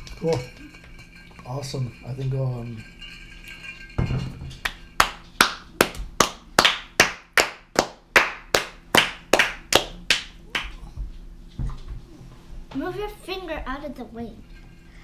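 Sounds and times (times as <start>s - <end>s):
child clapping hands: 4.6s - 10.8s.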